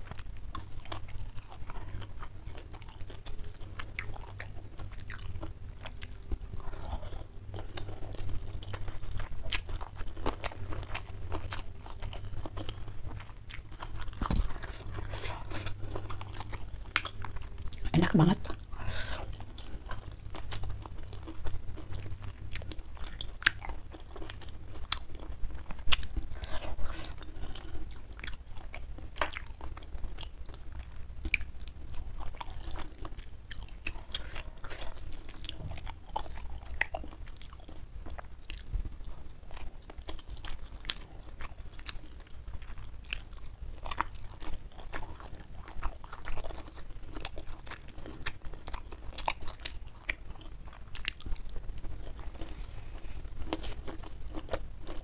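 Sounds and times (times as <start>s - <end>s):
person chewing crunchy food: 0.0s - 55.0s.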